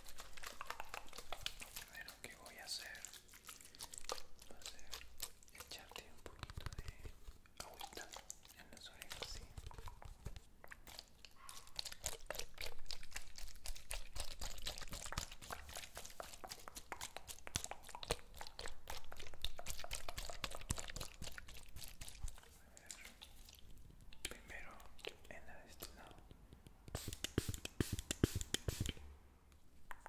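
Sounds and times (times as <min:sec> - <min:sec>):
fingers tapping plastic spray bottle: 0:00.3 - 0:01.8, 0:06.1 - 0:07.1, 0:25.7 - 0:29.0.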